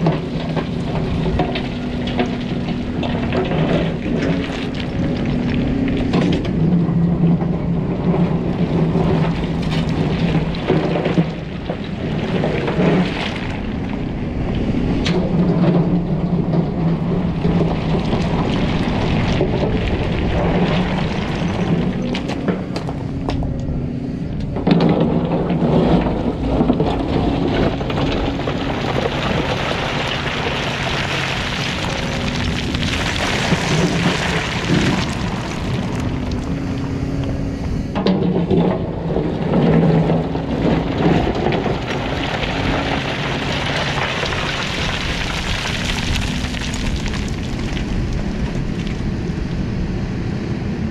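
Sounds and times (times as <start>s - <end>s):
excavator engine under load: 0.0s - 50.9s
bucket scraping through rock: 8.1s - 13.8s, 17.1s - 23.2s, 24.4s - 37.1s, 38.3s - 48.7s.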